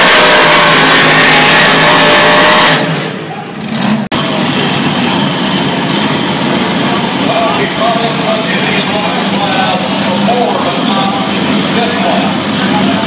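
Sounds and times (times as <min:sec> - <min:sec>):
distant engines: 0:00.0 - 0:13.0
tractor engine at full throttle: 0:00.0 - 0:13.0
crowd murmur: 0:06.6 - 0:13.0.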